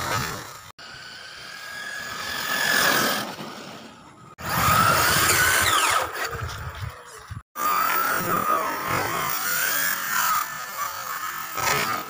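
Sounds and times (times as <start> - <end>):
electric motor whining: 4.4 - 12.0.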